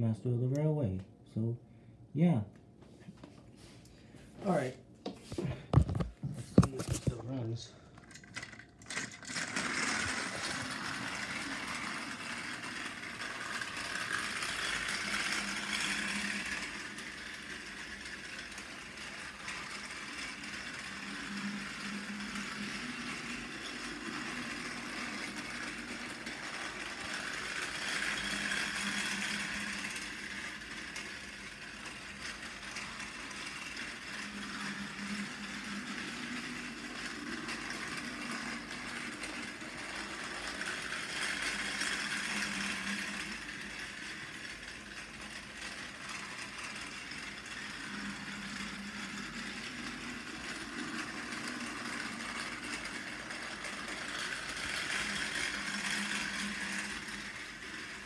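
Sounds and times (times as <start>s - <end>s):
toy train motor whirring: 5.4s - 58.0s
wheels rattling on plastic track: 5.7s - 58.0s.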